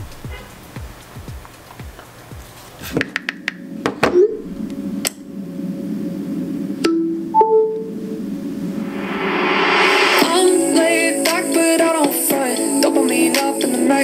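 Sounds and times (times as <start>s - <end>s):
music with deep beat: 0.0s - 3.0s
song through small speaker: 9.6s - 14.0s.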